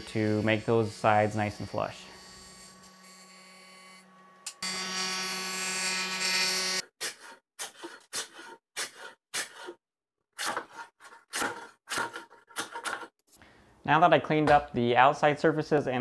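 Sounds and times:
hand plane shaving wood: 0:06.8 - 0:09.8, 0:10.4 - 0:13.2.

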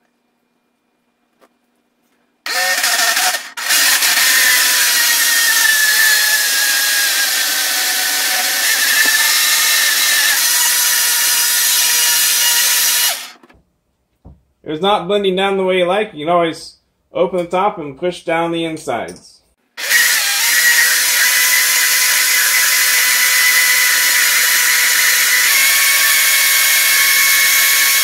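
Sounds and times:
electric blender motor running: 0:02.5 - 0:13.4, 0:19.8 - 0:28.0.

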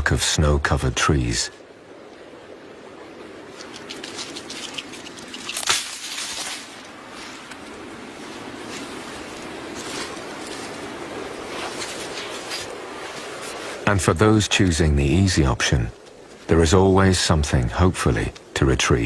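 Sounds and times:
flowing water rushing: 0:00.0 - 0:19.0
animal squishing in icy water: 0:03.5 - 0:06.8.

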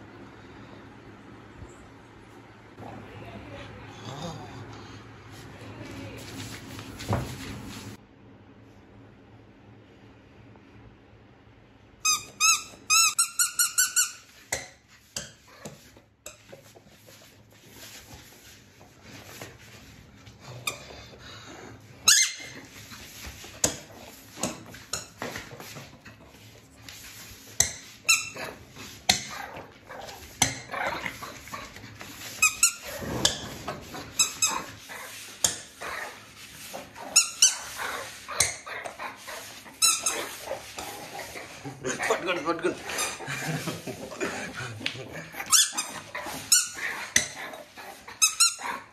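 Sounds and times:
squeaky toy ball squeaking: 0:12.0 - 0:14.3, 0:22.0 - 0:22.6, 0:45.5 - 0:47.4.

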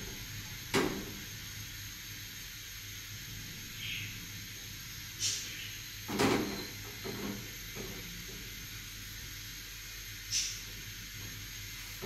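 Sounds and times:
gas stove burner hissing: 0:00.0 - 0:12.0.

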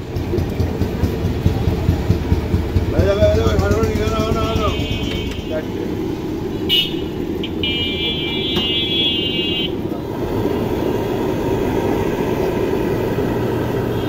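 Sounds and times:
street traffic noise: 0:00.0 - 0:14.0
buzzing vehicle horn: 0:04.4 - 0:05.6, 0:06.6 - 0:09.8, 0:13.7 - 0:14.0.

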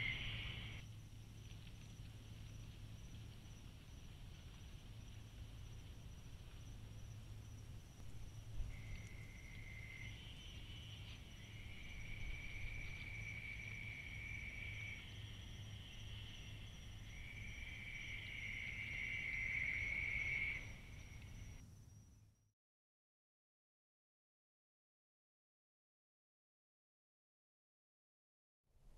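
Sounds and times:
faint steady hum: 0:00.0 - 0:22.5.

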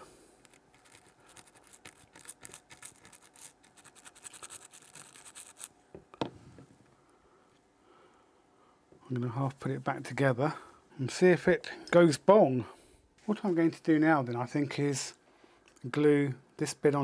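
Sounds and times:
scratchy scrubbing on circuit board: 0:00.5 - 0:05.7.

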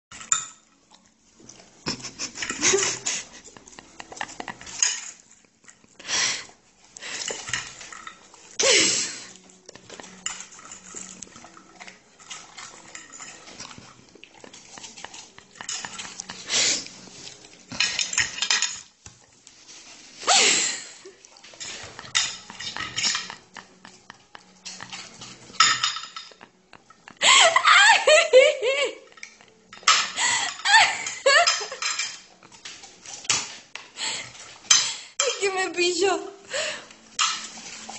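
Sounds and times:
dog eating from a dish: 0:00.2 - 0:19.6, 0:21.2 - 0:27.1.

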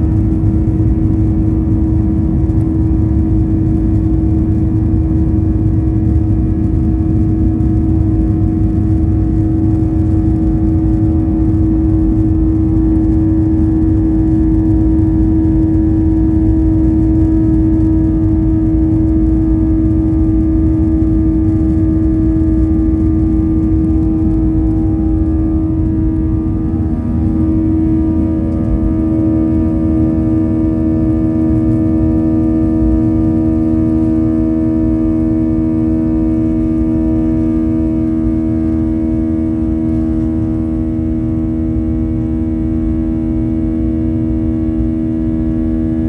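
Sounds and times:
aircraft cabin rumble: 0:00.0 - 0:46.0
steady engine hum: 0:00.0 - 0:46.0.

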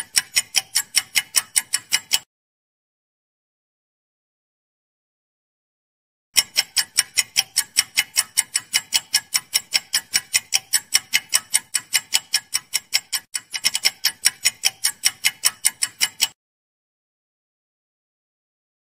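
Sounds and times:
clock ticking: 0:00.0 - 0:02.3, 0:06.4 - 0:16.4.

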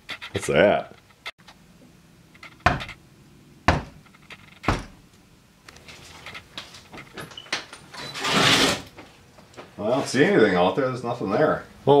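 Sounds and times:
knocks on a wooden door: 0:02.6 - 0:02.9, 0:03.7 - 0:04.0.

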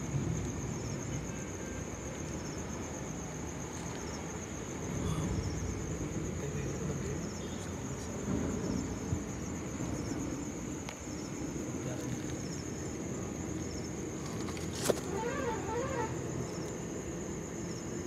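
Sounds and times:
crickets trilling: 0:00.0 - 0:18.0
rustling handling noise: 0:14.2 - 0:15.4.

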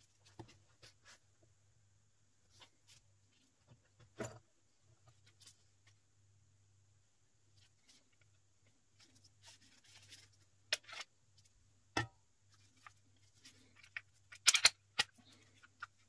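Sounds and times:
faint rustling of plastic gloves: 0:00.0 - 0:16.0
pistol parts clicking and clacking: 0:14.3 - 0:15.2.

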